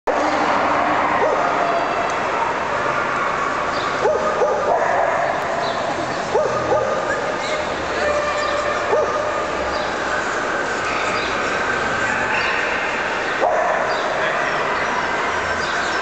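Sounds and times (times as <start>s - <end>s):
dogs yipping and barking: 3.7s - 7.8s, 8.8s - 9.5s, 12.0s - 14.4s
crowd chatter: 4.3s - 16.0s.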